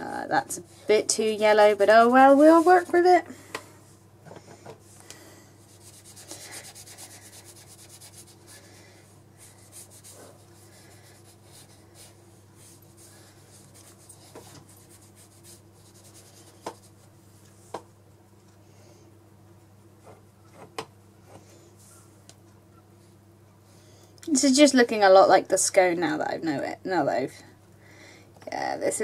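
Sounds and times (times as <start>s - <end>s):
low steady hum: 0.0s - 29.0s
brush scrubbing on paper: 1.1s - 3.2s, 5.6s - 8.8s, 9.4s - 17.1s.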